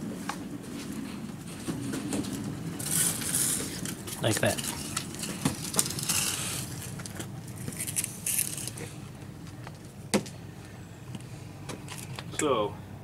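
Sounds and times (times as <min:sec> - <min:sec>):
wheels rolling on concrete: 0:00.0 - 0:12.4.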